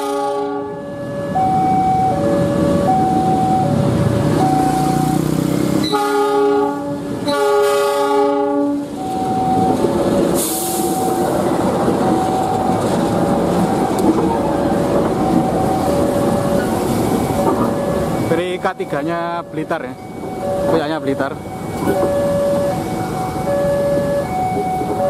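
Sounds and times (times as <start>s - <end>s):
locomotive horn blasts: 0.0s - 0.8s, 5.8s - 9.0s.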